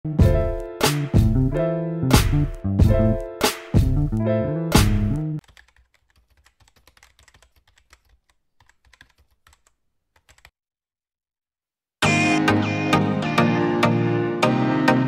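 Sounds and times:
music with steady beat: 0:00.1 - 0:05.4
keyboard typing clicks: 0:05.1 - 0:10.5.

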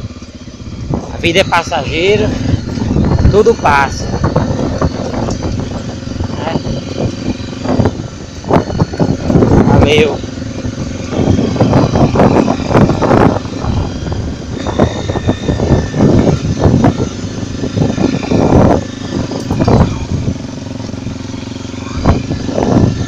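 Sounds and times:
motorcycle engine running: 0:00.0 - 0:23.0
wind buffeting microphone: 0:00.0 - 0:23.0.

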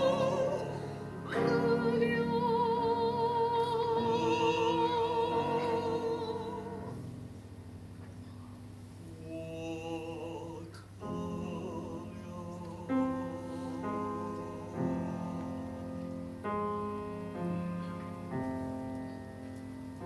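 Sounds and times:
person singing: 0:00.0 - 0:07.0, 0:09.0 - 0:16.2
piano chords: 0:00.0 - 0:20.0.

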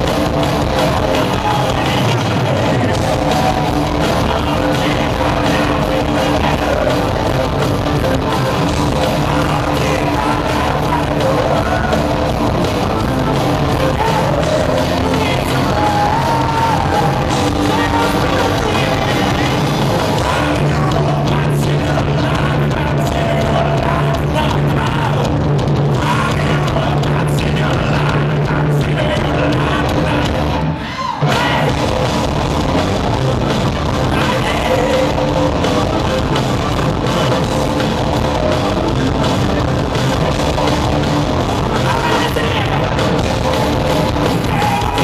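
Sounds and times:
rock band playing live: 0:00.0 - 0:45.0.

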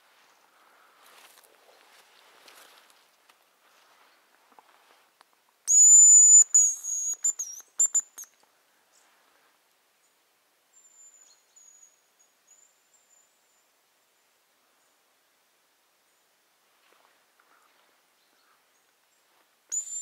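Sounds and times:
high thin decoy whistle: 0:05.7 - 0:08.3, 0:19.7 - 0:20.0.

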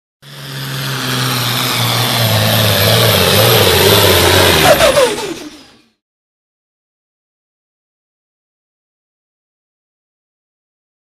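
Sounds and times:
tractor engine under load: 0:00.2 - 0:06.0.

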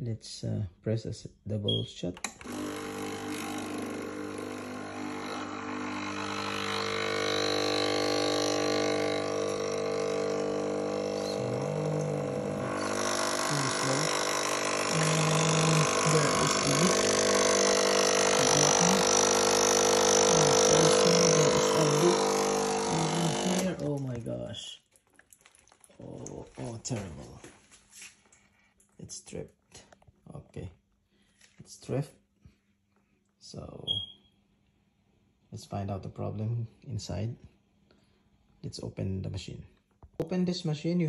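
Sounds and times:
pump humming with low sputters: 0:02.3 - 0:28.5.

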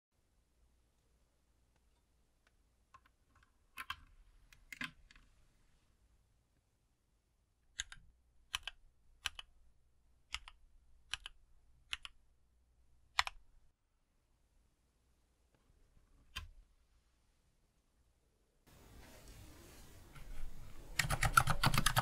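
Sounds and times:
quiet keyboard keystrokes: 0:01.8 - 0:05.3, 0:07.7 - 0:09.6, 0:10.3 - 0:12.2, 0:13.1 - 0:13.4, 0:20.2 - 0:22.0.

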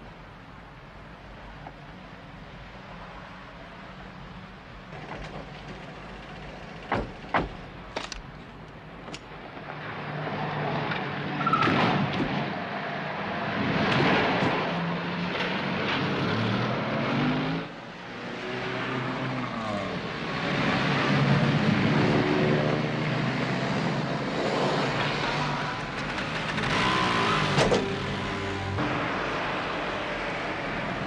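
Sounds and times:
cars and motorcycles driving past: 0:09.7 - 0:31.0.

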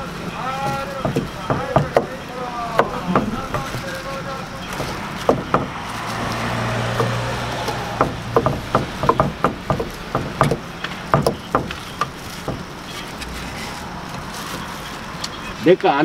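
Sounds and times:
cleaver chopping on wooden board: 0:00.7 - 0:02.2, 0:02.8 - 0:03.8, 0:04.7 - 0:05.8, 0:06.9 - 0:12.7.

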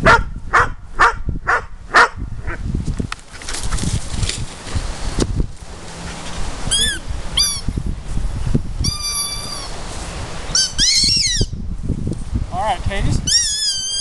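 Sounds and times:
wind rumbling on microphone: 0:00.0 - 0:14.0
dog whining: 0:08.8 - 0:09.7, 0:10.6 - 0:11.5, 0:13.3 - 0:14.0.

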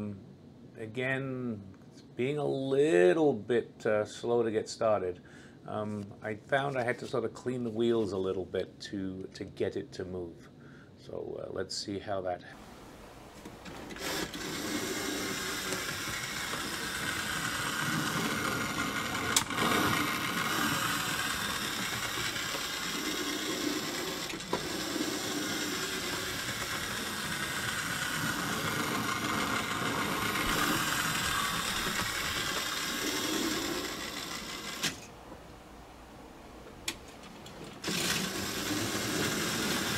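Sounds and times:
model train motor whirring: 0:13.6 - 0:35.1, 0:37.8 - 0:39.9.

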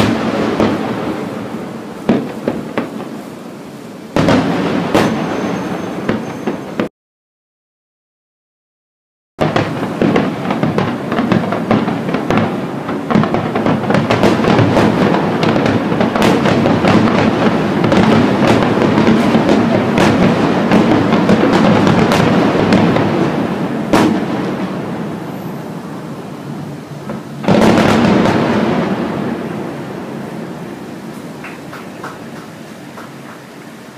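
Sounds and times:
fireworks crackling and banging: 0:00.0 - 0:06.9, 0:09.4 - 0:33.9
continuous rumble: 0:09.6 - 0:33.9.

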